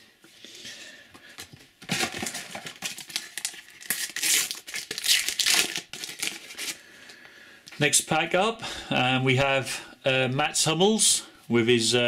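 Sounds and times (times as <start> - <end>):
foil packet crinkling: 1.8 - 6.8.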